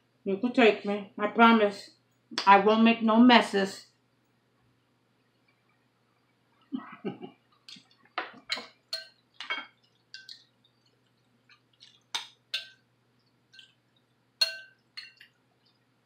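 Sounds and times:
metal spoon clinking on glass bowl: 8.4 - 10.4, 12.2 - 12.8, 14.4 - 15.3.

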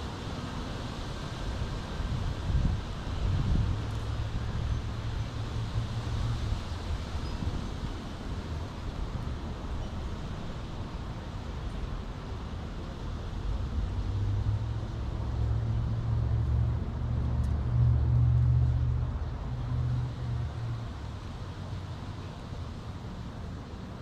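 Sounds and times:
road traffic rumble: 0.0 - 24.0
vehicle engine drone: 13.1 - 22.8.

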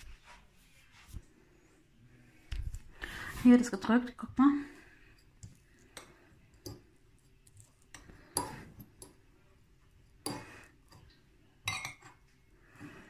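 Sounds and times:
metal fork clinking against bowl: 10.2 - 12.2.

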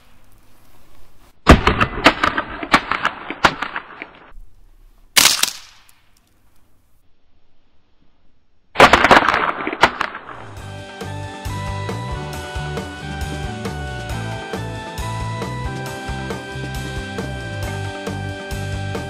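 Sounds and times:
sharp crack: 1.4 - 4.4, 5.1 - 6.4, 8.7 - 10.6
crackle of bang snaps popping: 5.2 - 6.2.

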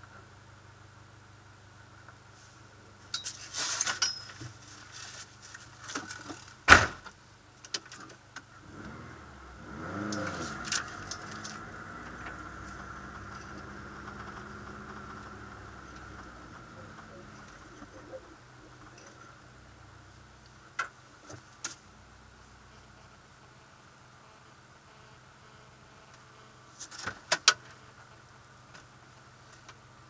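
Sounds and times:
clatter and rustling in car cabin: 3.1 - 8.6, 10.0 - 18.2, 26.8 - 27.8
car engine revving and droning: 8.5 - 20.3.

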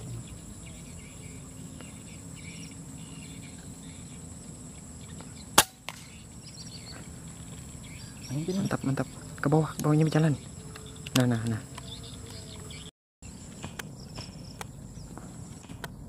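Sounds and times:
insect and bird chirps: 0.0 - 16.0
air rifle shot: 5.6 - 6.1.

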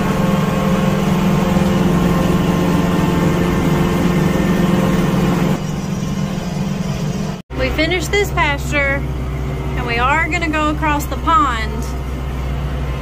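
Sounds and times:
tractor engine running under load: 0.0 - 13.0.

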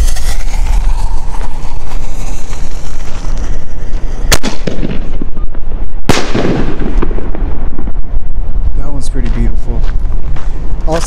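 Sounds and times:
firework bangs: 0.0 - 8.7.

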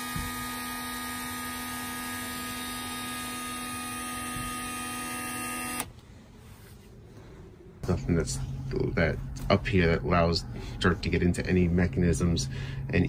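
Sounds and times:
electric motor humming: 0.0 - 5.9.

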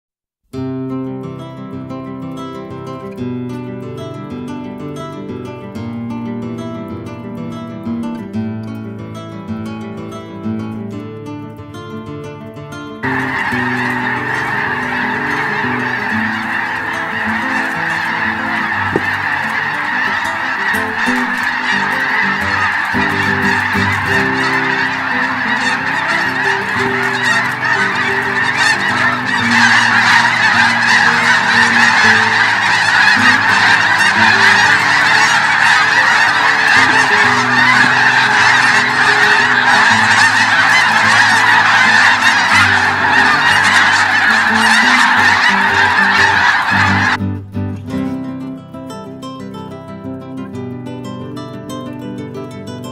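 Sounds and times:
geese honking: 13.0 - 47.3.

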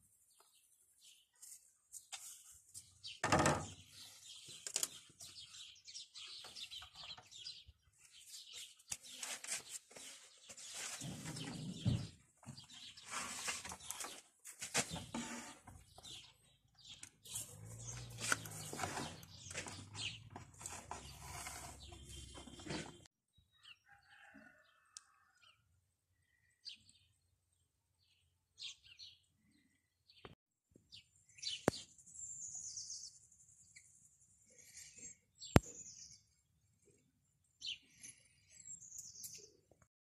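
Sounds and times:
birds chirping: 2.3 - 24.9.

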